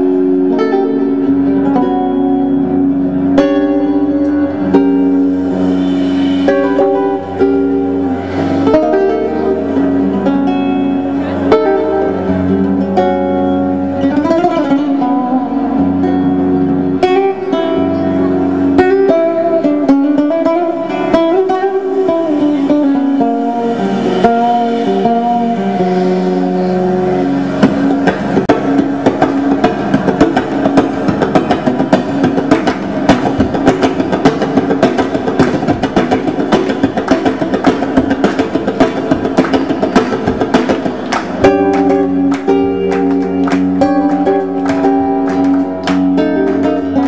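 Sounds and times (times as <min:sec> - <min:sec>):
acoustic guitar playing: 0:00.0 - 0:47.0
saxophone: 0:05.4 - 0:07.3
drum kit: 0:18.8 - 0:47.0.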